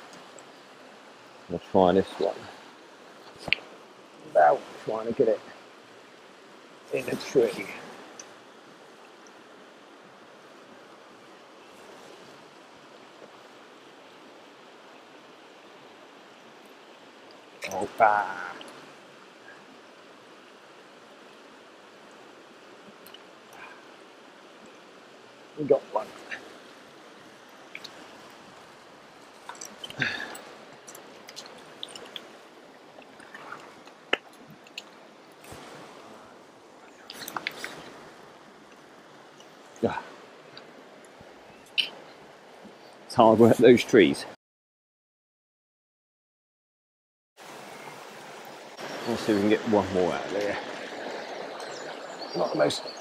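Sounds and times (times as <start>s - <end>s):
river flowing over rocks: 0.0s - 43.6s, 47.4s - 53.0s
faint clicks: 36.9s - 37.9s.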